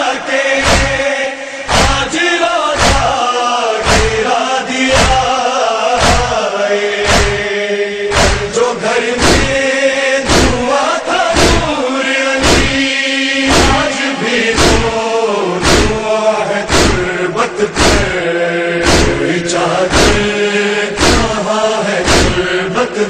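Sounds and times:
men chanting a lament in unison: 0.0s - 23.0s
chest beating: 7.0s - 7.5s, 8.1s - 8.6s, 9.2s - 9.6s, 10.3s - 10.7s, 11.4s - 11.7s, 12.4s - 12.8s, 13.5s - 13.9s, 14.6s - 15.0s, 15.6s - 16.0s, 16.7s - 17.1s, 17.7s - 18.2s, 18.8s - 19.3s, 19.9s - 20.3s, 21.0s - 21.4s, 22.0s - 22.4s.

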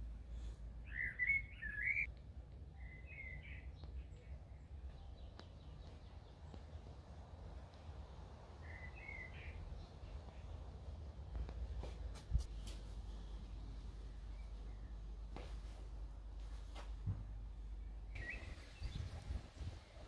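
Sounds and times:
steady low rumble: 0.0s - 20.0s
bird chirping: 0.8s - 2.1s, 2.7s - 7.0s, 8.6s - 10.6s, 17.8s - 19.4s.

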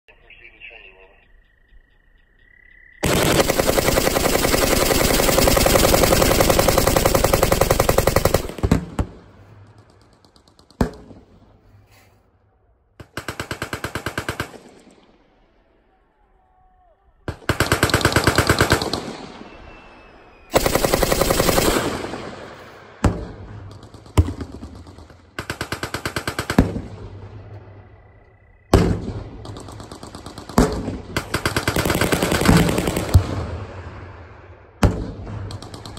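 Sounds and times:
machine-gun fire: 3.0s - 11.4s, 13.0s - 15.1s, 17.3s - 19.4s, 20.5s - 27.3s, 28.7s - 34.0s
sharp gunshot bangs: 28.7s - 29.5s.

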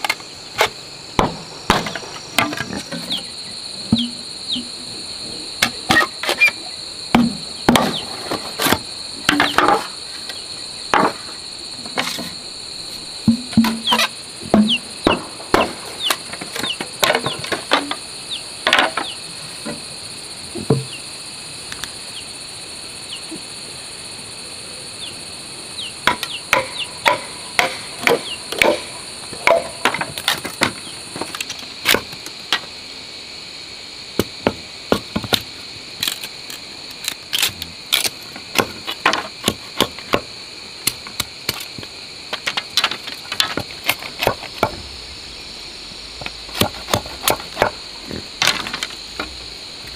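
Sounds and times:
insects chirring: 0.0s - 49.9s
machete splitting bamboo: 26.0s - 32.2s, 36.0s - 40.2s, 46.5s - 47.8s.

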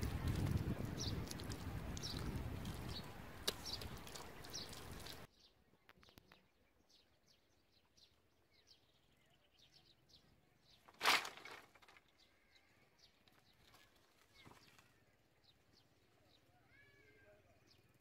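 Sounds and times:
bird chirping: 0.2s - 10.9s
loud rough rustling: 10.9s - 12.0s.

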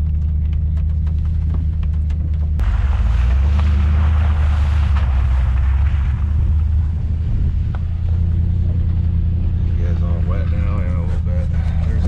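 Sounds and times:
low engine drone: 0.0s - 12.0s
tyres spraying water: 2.6s - 7.7s.

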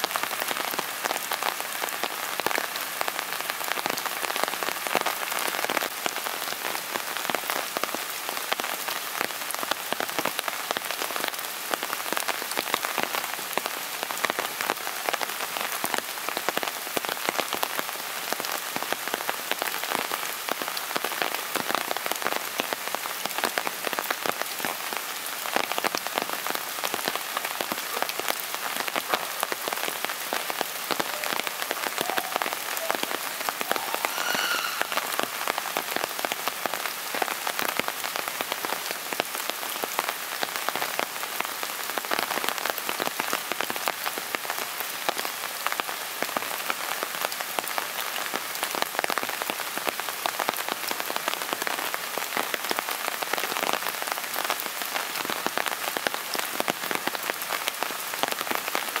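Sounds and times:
steady rain pattering: 0.0s - 59.0s
faint high-pitched call: 31.0s - 35.8s.

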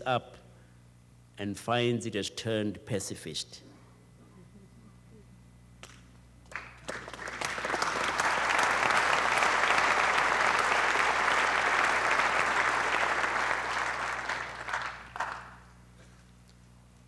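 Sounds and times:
audience applauding: 6.5s - 15.8s.

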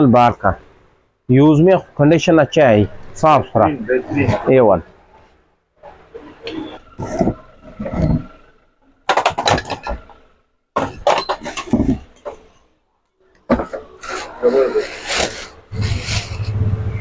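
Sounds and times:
vacuum cleaner parts clattering: 6.4s - 12.6s.

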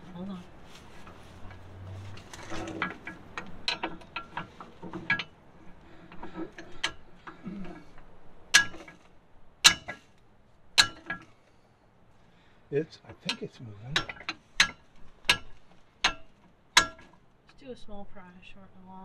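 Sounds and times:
sharp metal strikes: 9.6s - 10.1s, 10.8s - 11.2s.

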